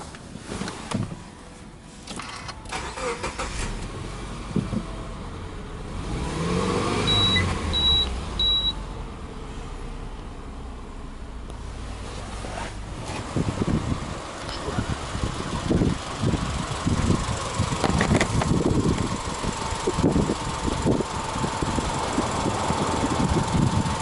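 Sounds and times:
car engine starting and idling: 0.0s - 24.0s
short high warning beeps: 7.1s - 8.8s.

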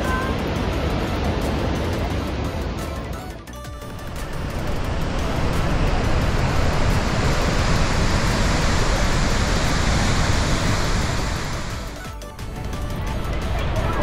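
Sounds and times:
waterfall rushing: 3.8s - 14.0s.

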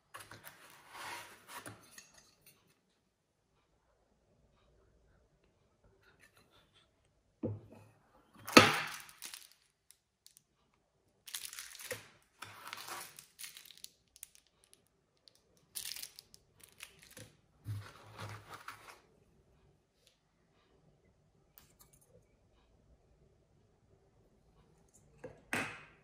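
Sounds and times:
packaging crinkling and rustling: 8.8s - 9.8s, 11.3s - 19.0s.

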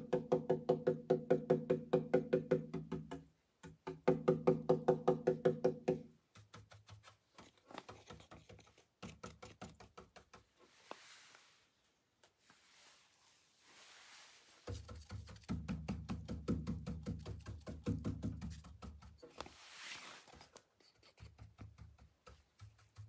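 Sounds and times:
paint brush knocking on wood: 1.4s - 10.8s, 14.6s - 23.0s
faint brushing hiss: 10.4s - 15.5s, 19.1s - 21.4s.

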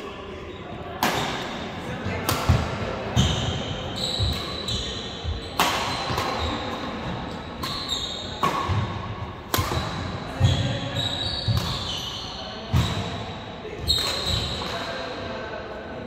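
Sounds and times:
racket hitting shuttlecock: 1.0s - 3.6s, 4.2s - 10.8s, 11.5s - 11.9s
sneaker squeaks: 2.5s - 15.1s.

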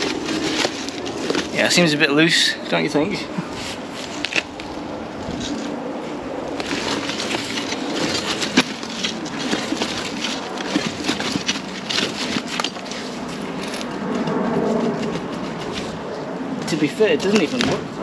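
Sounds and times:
bricks grinding together: 6.6s - 13.8s
mortar crunching: 6.6s - 13.8s.

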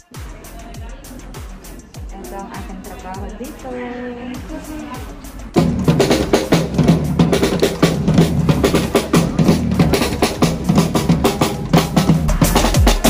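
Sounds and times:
drum group playing fast beat: 0.0s - 13.0s.

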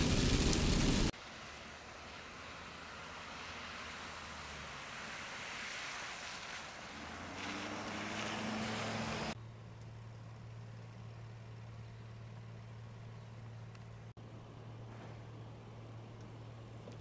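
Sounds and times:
tyres splashing through water: 0.0s - 9.4s
truck engine: 0.0s - 17.0s.

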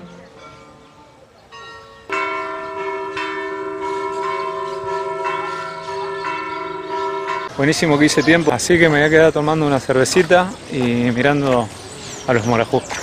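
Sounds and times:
church bells ringing: 0.0s - 10.3s.

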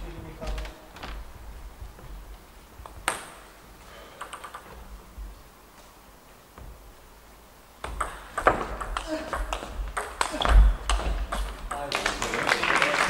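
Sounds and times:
table tennis ball ticking: 4.1s - 4.8s, 7.8s - 12.0s.

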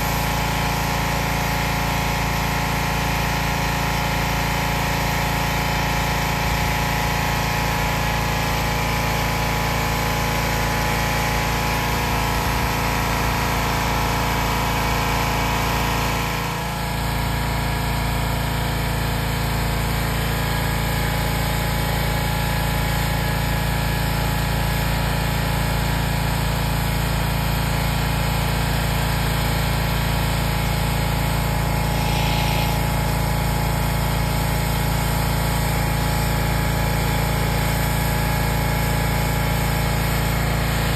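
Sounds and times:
small gasoline engine running: 0.0s - 40.9s.

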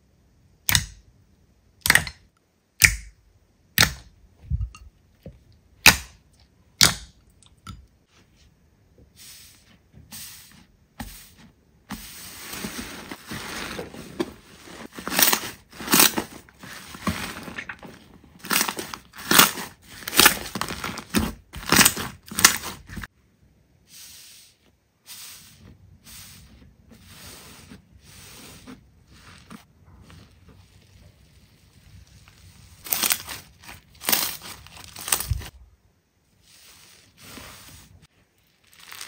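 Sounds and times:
slime squishing: 26.2s - 35.5s, 36.5s - 39.0s.

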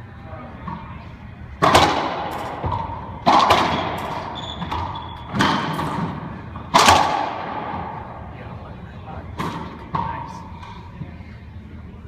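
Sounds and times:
racquetball hitting racquets and walls: 1.5s - 8.2s, 9.4s - 10.3s.

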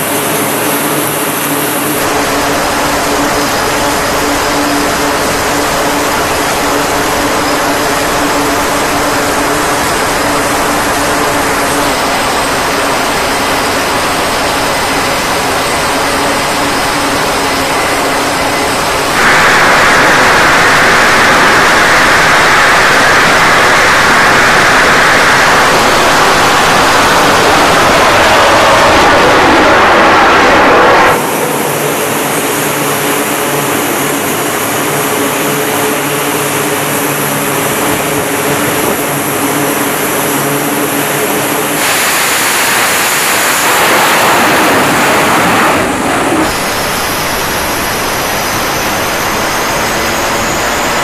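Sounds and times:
faint high whine: 0.0s - 51.0s
jet engines roaring: 0.0s - 51.0s.

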